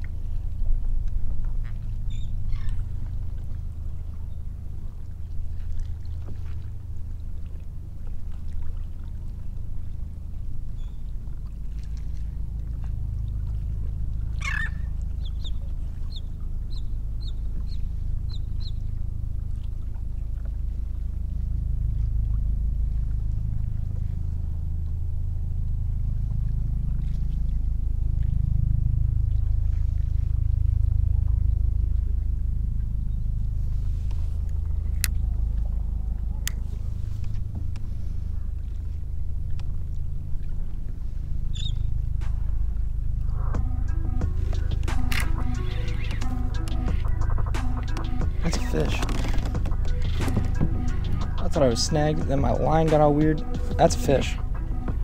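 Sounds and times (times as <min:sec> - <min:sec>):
wind and water rumble: 0:00.0 - 0:55.0
bird calling and chirping: 0:14.4 - 0:18.8, 0:41.5 - 0:41.9, 0:43.8 - 0:54.8.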